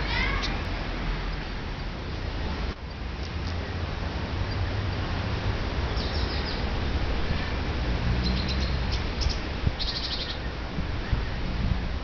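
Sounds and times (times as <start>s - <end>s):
songbirds chirping: 5.8s - 12.0s.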